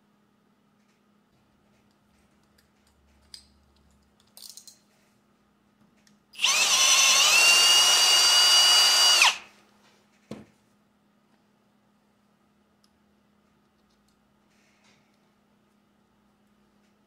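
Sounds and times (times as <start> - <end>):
cordless drill whining through metal: 6.4 - 9.5.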